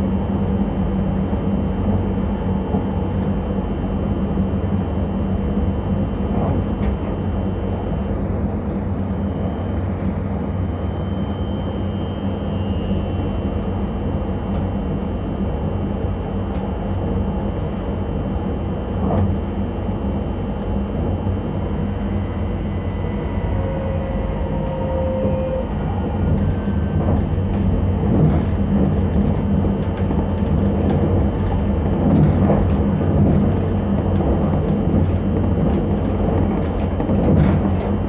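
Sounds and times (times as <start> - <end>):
train wheels rumbling on rails: 5.6 - 38.0
faint short whine: 5.9 - 17.5, 18.9 - 28.6.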